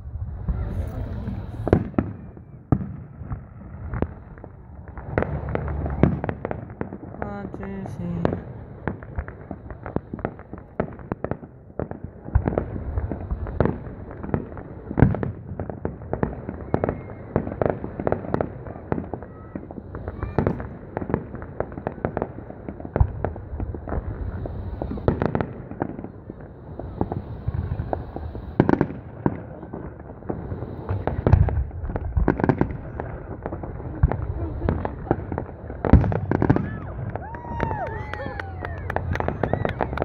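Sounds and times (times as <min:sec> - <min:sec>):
distant fireworks booms: 0:00.0 - 0:40.0
fireworks bangs pops and crackles: 0:00.0 - 0:40.0.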